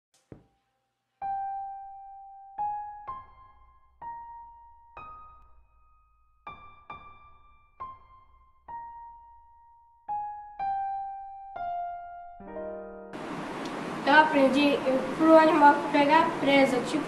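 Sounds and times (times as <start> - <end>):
slow keyboard melody: 1.2 - 13.3.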